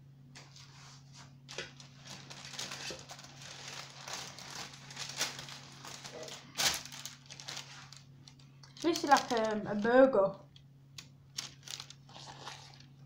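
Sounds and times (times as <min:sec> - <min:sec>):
baking paper crinkling: 0:00.4 - 0:10.3, 0:11.3 - 0:13.0.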